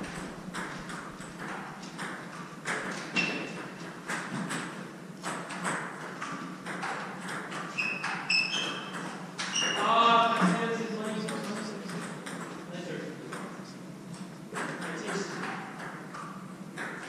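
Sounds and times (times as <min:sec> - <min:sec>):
table tennis ball clicking: 0:00.1 - 0:09.8, 0:14.5 - 0:17.0
sneakers squeaking on wooden floor: 0:02.3 - 0:04.4, 0:07.5 - 0:10.6.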